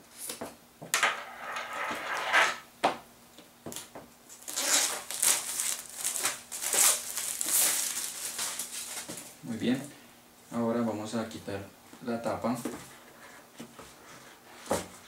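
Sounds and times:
plastic wrap crinkling: 4.3s - 9.4s.

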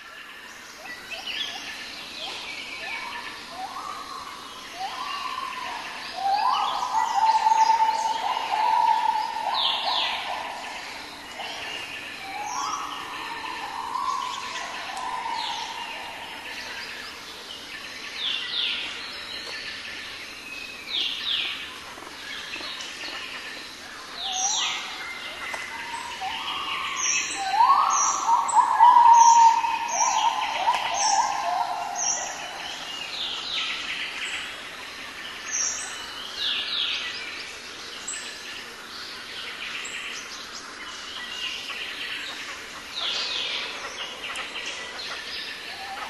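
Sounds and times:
birds whistling: 25.8s - 32.4s.

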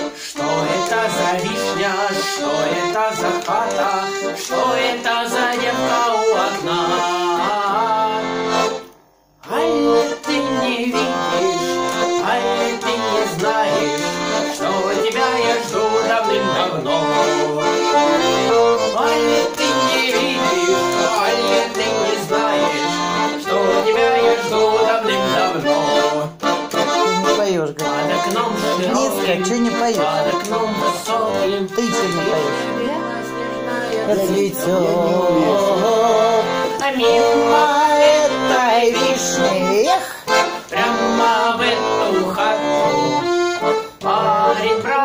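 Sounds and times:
button accordion melody: 0.0s - 45.0s.

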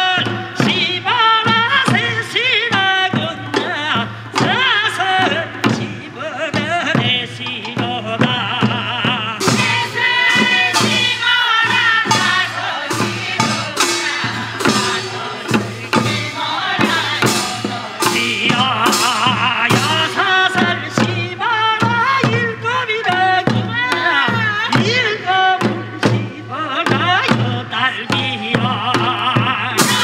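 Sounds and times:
drum beats: 0.0s - 30.0s
person singing folk melody: 0.0s - 30.0s
bright percussion strikes: 9.4s - 21.2s.

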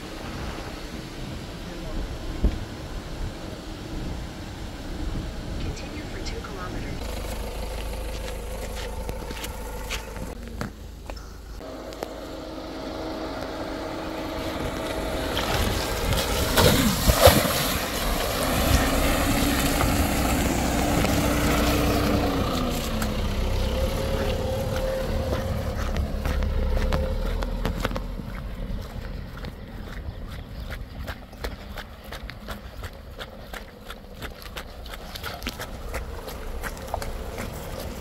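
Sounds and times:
car engine running: 1.9s - 38.0s
tyres splashing through water: 12.4s - 38.0s.

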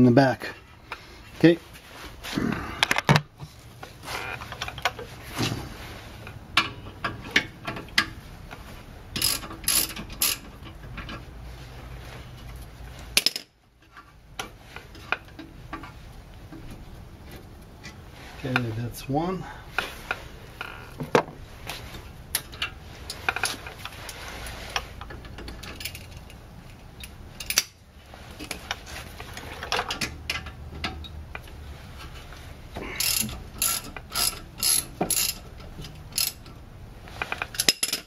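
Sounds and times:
socket ratchet clicking: 33.0s - 35.4s, 36.0s - 36.4s.

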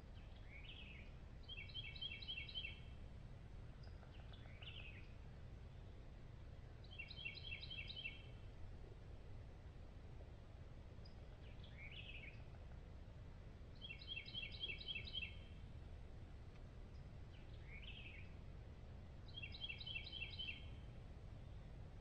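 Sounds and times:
low background noise: 0.0s - 22.0s
small bird singing: 0.2s - 3.0s, 3.8s - 5.9s, 6.8s - 8.4s, 11.0s - 12.5s, 13.8s - 15.6s, 16.9s - 18.4s, 19.3s - 21.7s.

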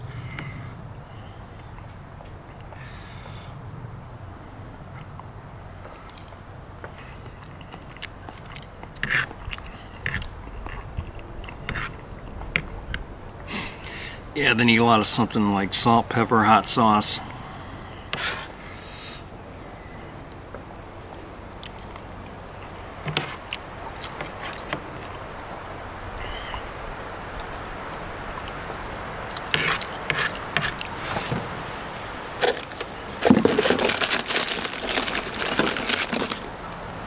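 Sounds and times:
person chewing: 7.4s - 11.9s, 29.3s - 30.9s
scraping noises: 11.5s - 12.0s, 29.4s - 36.6s.

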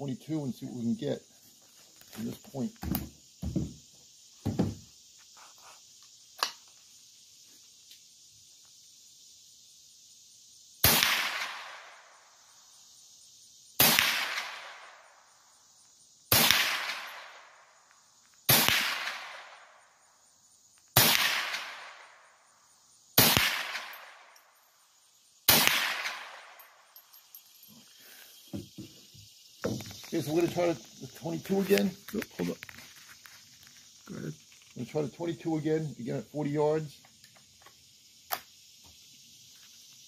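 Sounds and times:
rifle shots echoing: 13.8s - 14.9s, 16.3s - 17.4s, 18.5s - 19.6s, 21.0s - 22.0s, 23.2s - 24.2s, 25.5s - 26.6s.

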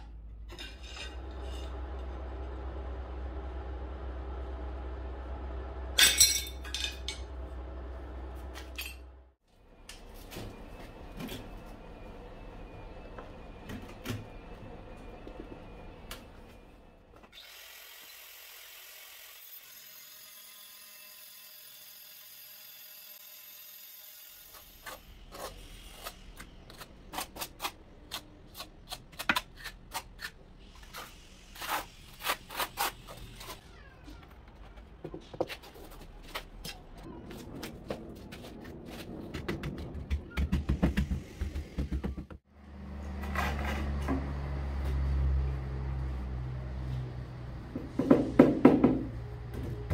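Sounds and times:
trowel scraping mortar: 24.4s - 33.6s.

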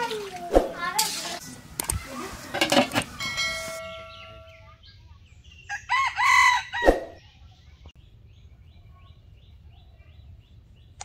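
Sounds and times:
rooster crowing: 5.7s - 7.2s.

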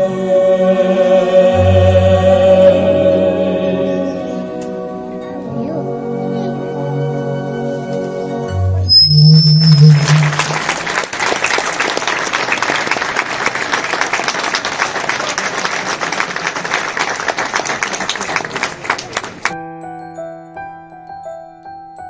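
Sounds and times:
soft keyboard music: 1.9s - 9.2s, 19.5s - 22.0s
band holding final note: 8.9s - 11.0s
audience applauding: 9.7s - 19.5s.

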